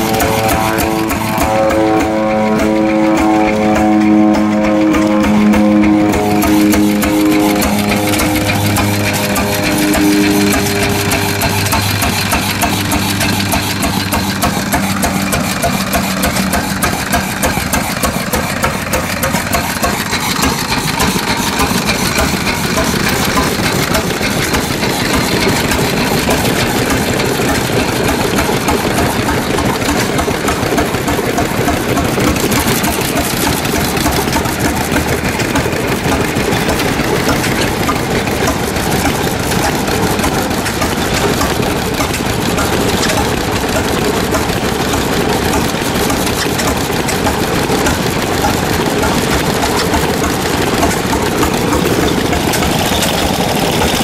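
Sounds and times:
low humming tone: 0:00.0 - 0:16.5
engine running with rapid clatter: 0:00.0 - 0:54.0.

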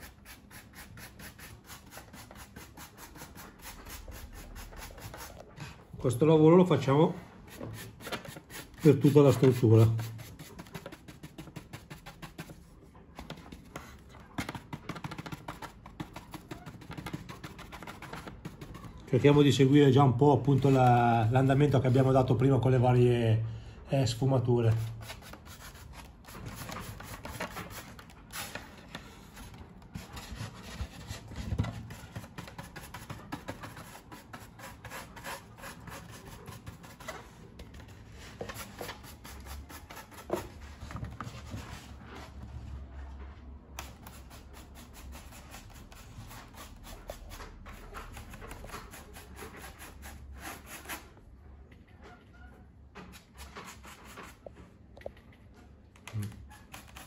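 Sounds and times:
stiff paintbrush scratching: 0:00.0 - 0:05.9, 0:07.5 - 0:19.4, 0:20.2 - 0:22.2, 0:24.6 - 0:40.6, 0:43.8 - 0:51.2.

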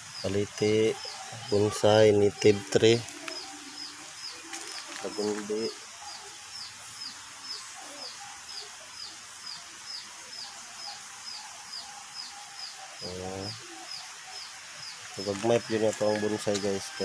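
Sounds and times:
bird chirping: 0:00.0 - 0:17.0
outdoor background hiss: 0:00.0 - 0:17.0
man speaking: 0:00.3 - 0:03.1, 0:05.0 - 0:05.8, 0:13.0 - 0:13.6, 0:15.2 - 0:17.0.

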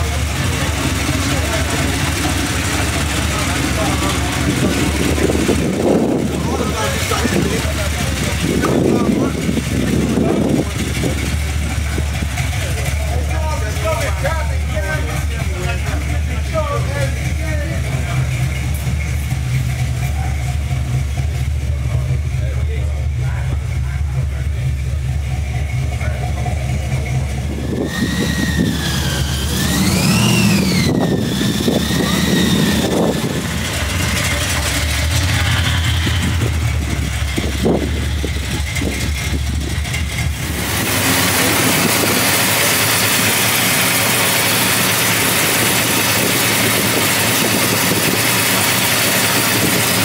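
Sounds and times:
car engine deep rumble: 0:00.0 - 0:50.0
hissy engine sound: 0:24.1 - 0:50.0
high rising and falling tone: 0:26.7 - 0:46.4.

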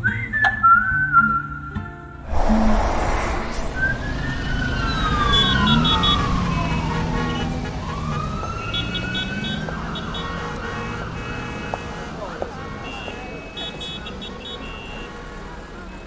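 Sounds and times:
low steady rumble: 0:02.2 - 0:05.6
siren wailing: 0:02.3 - 0:10.0.

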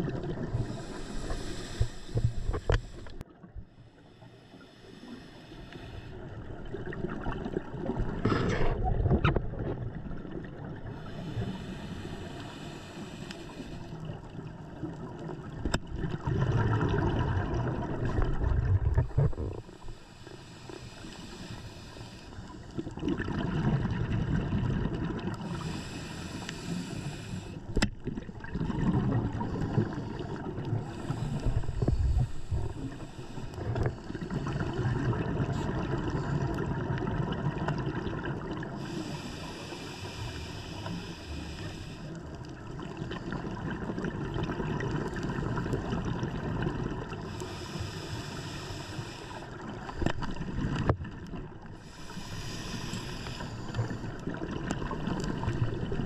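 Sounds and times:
muffled rumble of moving water: 0:00.0 - 0:56.0
regulator bubbles rushing: 0:16.0 - 0:19.6.

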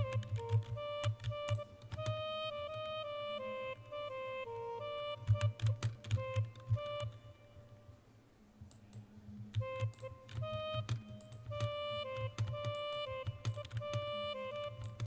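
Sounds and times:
woodwind melody of held notes: 0:00.0 - 0:15.0
keyboard taps: 0:05.3 - 0:06.9.

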